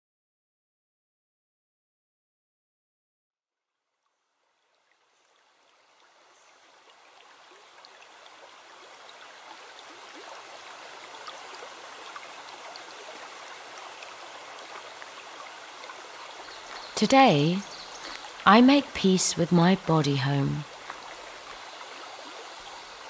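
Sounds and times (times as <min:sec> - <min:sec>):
woodland stream running: 0:04.1 - 0:23.0.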